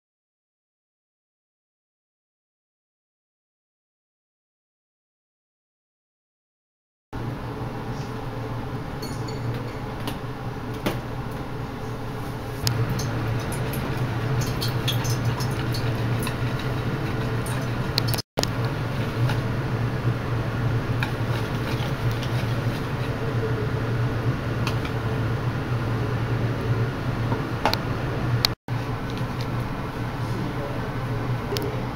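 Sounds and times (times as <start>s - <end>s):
low hum: 7.2s - 31.9s
whisk beating batter: 12.4s - 19.8s, 20.4s - 23.6s.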